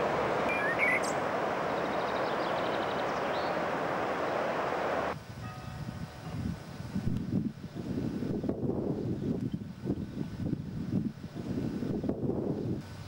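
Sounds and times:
bird chirps: 0.4 - 3.6.

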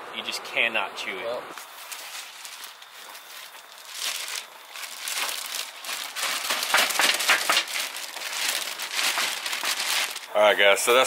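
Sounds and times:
plastic bag crinkling: 1.6 - 10.3.

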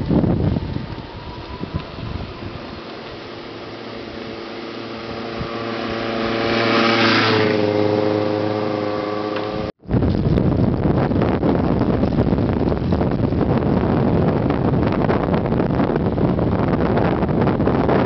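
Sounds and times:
wind on microphone: 0.0 - 18.0
vehicle engine passing by: 1.0 - 9.8.

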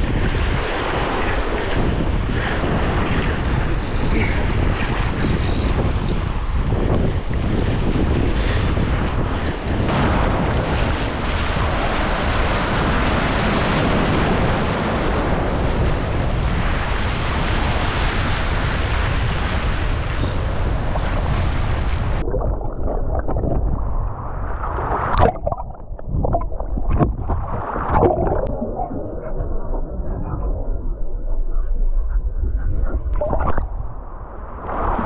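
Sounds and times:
wind buffeting microphone: 0.0 - 35.0
surf washing over rocks: 9.9 - 22.3
muffled underwater sloshing: 21.9 - 35.0
underwater knocks: 25.1 - 28.6.

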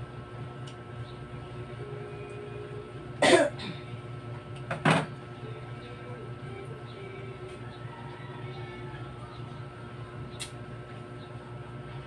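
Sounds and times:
steady low hum: 0.0 - 12.0
person coughing: 3.2 - 3.9.

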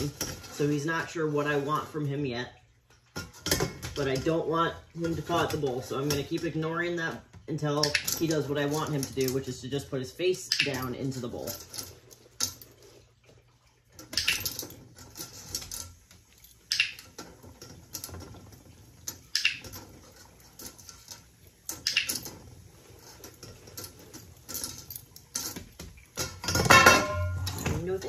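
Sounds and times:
treats clinking in metal colander: 23.0 - 28.0.

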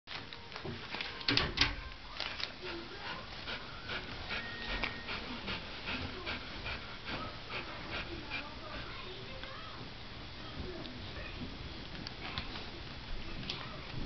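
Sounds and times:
dog panting: 2.2 - 9.4.

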